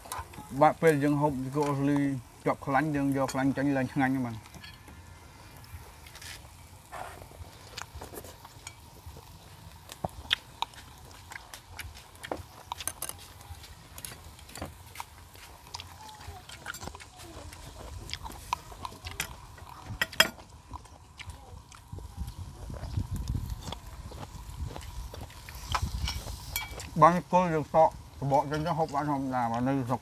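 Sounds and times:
chewing and mouth sounds: 0:03.3 - 0:27.0.

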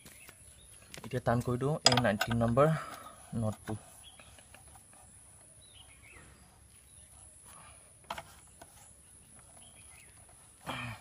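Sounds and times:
spanner clicking on metal nut: 0:01.8 - 0:02.6
bird chirps: 0:03.9 - 0:07.7, 0:08.7 - 0:10.6.

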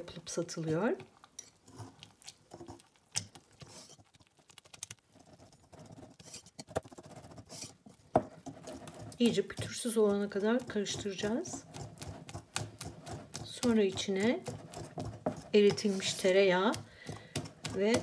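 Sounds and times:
whisk beating batter in bowl: 0:05.1 - 0:18.0.

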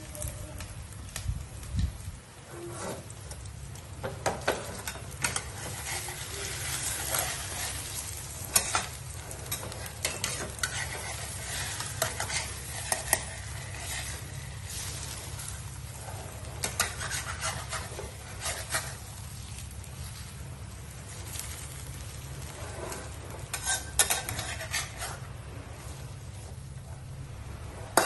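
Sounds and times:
shrimp sizzling in a frying pan: 0:00.0 - 0:28.0
utensil knocking and scraping pan: 0:16.6 - 0:19.0, 0:22.5 - 0:25.3.

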